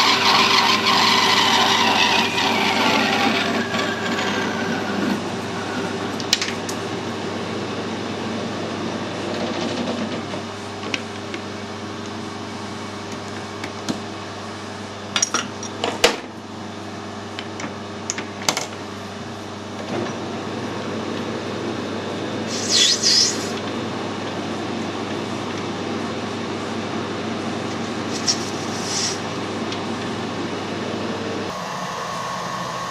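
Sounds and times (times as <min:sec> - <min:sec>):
metal lathe humming: 0:00.0 - 0:07.6
short hissing scrape: 0:22.4 - 0:23.6, 0:28.0 - 0:29.3.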